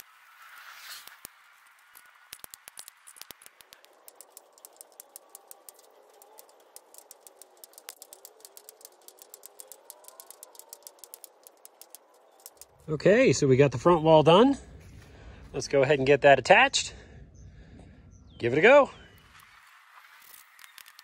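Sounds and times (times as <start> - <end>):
wire snips clicking: 1.0 - 12.9.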